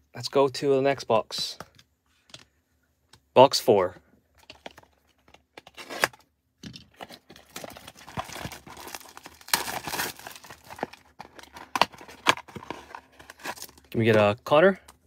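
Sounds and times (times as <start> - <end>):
plastic wrap crinkling and tearing: 6.9 - 14.0.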